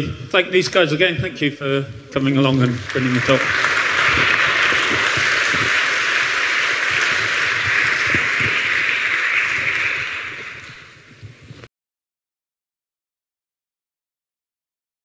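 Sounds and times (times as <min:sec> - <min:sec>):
audience applauding: 0:02.5 - 0:11.1.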